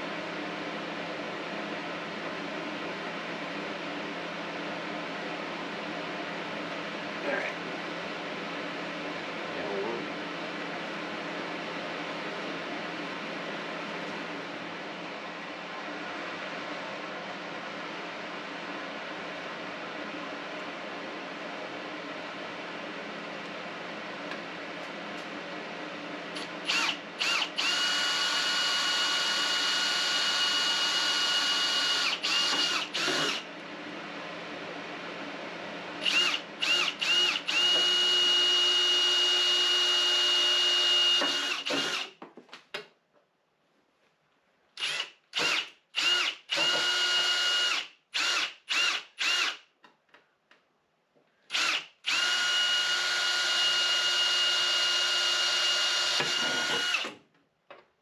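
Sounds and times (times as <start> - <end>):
cordless drill whine: 26.4 - 33.5, 36.0 - 42.2, 44.8 - 49.7, 51.5 - 57.2.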